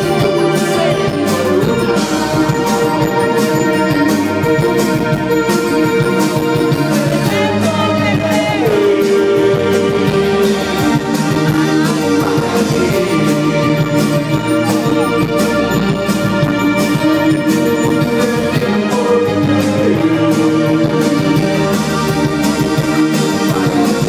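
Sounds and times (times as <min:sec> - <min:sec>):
person singing: 0:00.0 - 0:04.8, 0:06.4 - 0:24.0
live band playing: 0:00.0 - 0:24.0.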